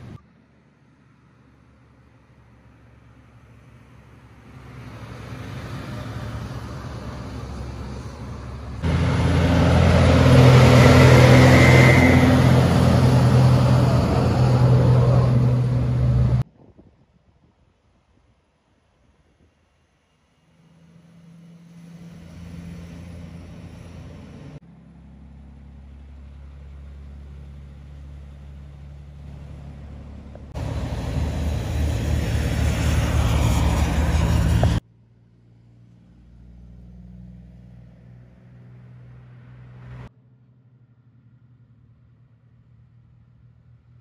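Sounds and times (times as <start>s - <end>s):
diesel trucks driving past: 0.0s - 16.4s, 20.3s - 44.0s
truck tyre noise: 1.7s - 16.5s, 20.6s - 34.8s.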